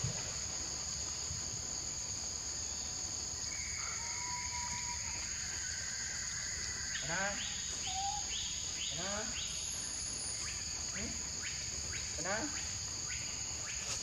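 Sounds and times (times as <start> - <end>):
insects droning: 0.0 - 14.0
faint thin whistled tones: 7.8 - 8.6.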